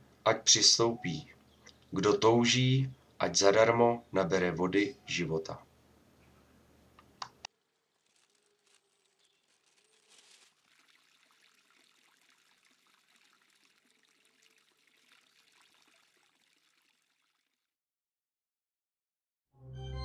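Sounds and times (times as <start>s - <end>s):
water trickling and splashing: 7.8s - 17.7s.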